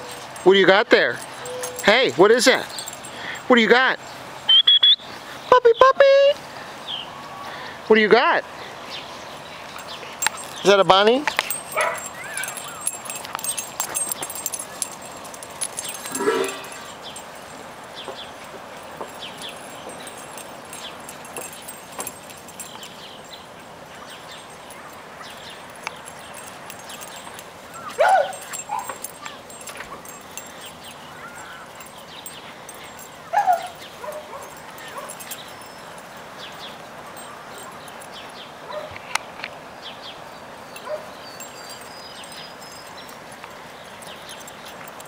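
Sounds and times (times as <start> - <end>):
puppies barking and yipping: 0.0 - 0.5, 1.2 - 3.5, 10.0 - 10.8, 11.4 - 39.1, 40.7 - 45.0.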